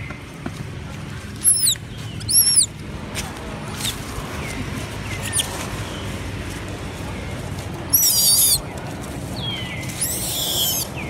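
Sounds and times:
young monkey squealing: 1.4 - 2.7, 5.2 - 5.5, 7.9 - 8.6, 9.9 - 10.9.

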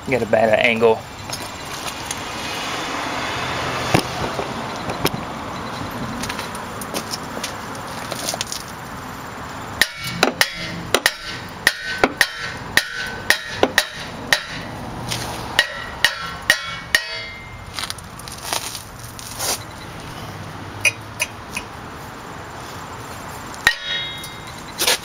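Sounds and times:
hammer striking metal rotor: 9.8 - 14.8, 15.6 - 17.6, 23.6 - 24.6.

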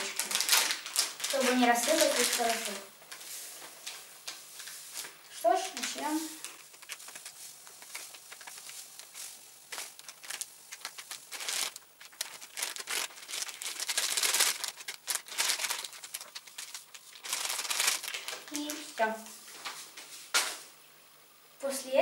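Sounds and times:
plastic packet crinkling: 0.0 - 19.0
powder pouring into water: 6.4 - 18.6.

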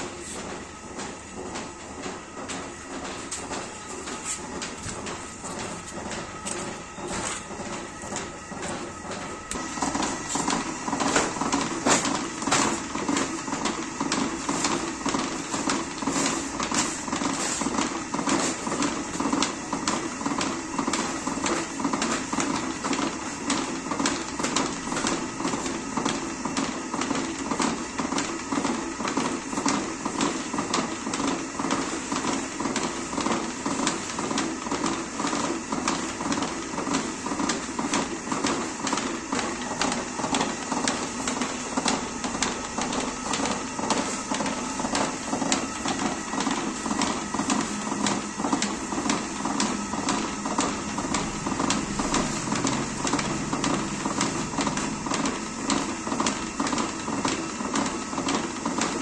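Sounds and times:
potter's wheel humming: 0.0 - 59.0.

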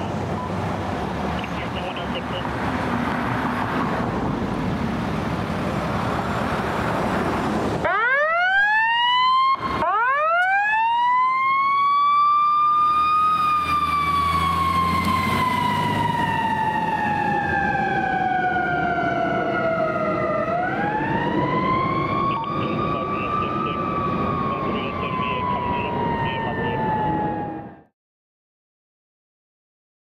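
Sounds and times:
diesel engine humming: 0.0 - 7.9, 12.7 - 27.4
siren wailing: 7.8 - 27.9.

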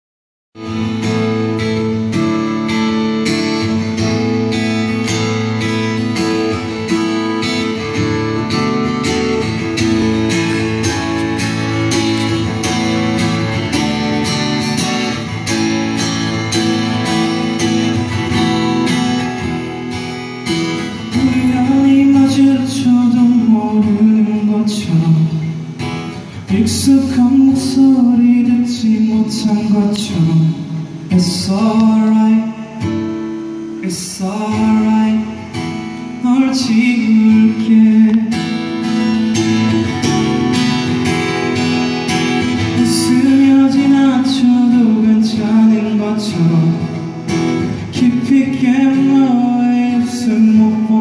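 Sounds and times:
acoustic guitar strumming: 0.6 - 51.0
man singing: 20.8 - 25.6, 26.4 - 33.1, 33.8 - 39.3, 42.4 - 51.0.

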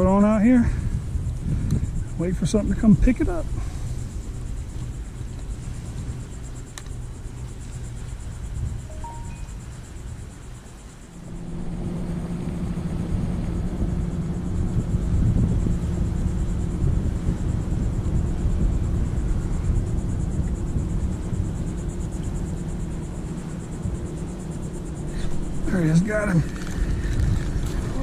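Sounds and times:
outboard motor running: 11.1 - 18.0, 19.1 - 28.0.

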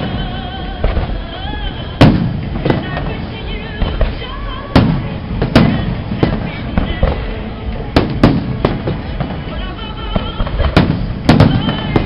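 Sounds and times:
fireworks bangs echoing: 0.0 - 12.0
small firework pops: 10.1 - 12.0.

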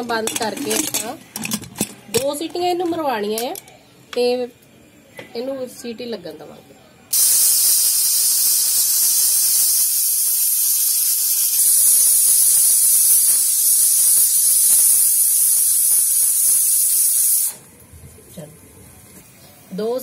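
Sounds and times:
pressure cooker whistling: 7.1 - 17.6.

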